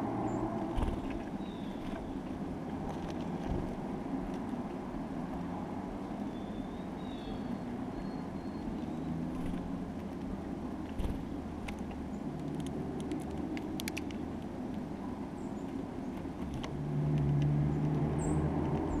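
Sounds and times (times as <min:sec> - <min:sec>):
distant road traffic rumble: 0:00.0 - 0:19.0
birds cracking seeds: 0:00.5 - 0:06.3, 0:08.8 - 0:19.0
faint high bird chirps: 0:01.1 - 0:02.2, 0:06.3 - 0:09.3.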